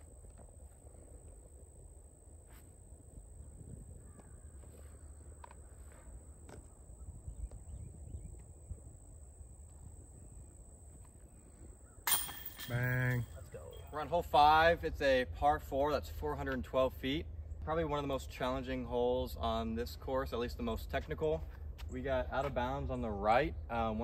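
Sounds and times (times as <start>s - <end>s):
low wind rumble: 0.0s - 12.1s
high-pitched insect drone: 0.0s - 13.9s.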